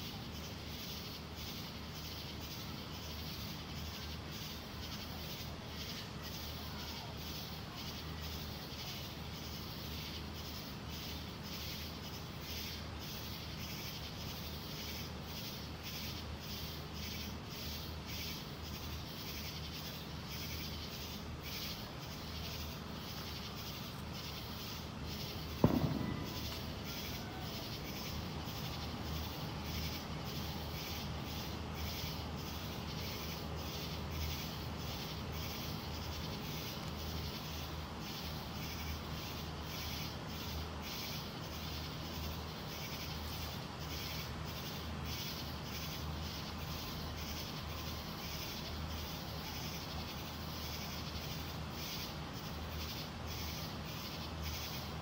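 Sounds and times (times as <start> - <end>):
night insects chorus: 0.0 - 55.0
firework bang: 25.5 - 28.2.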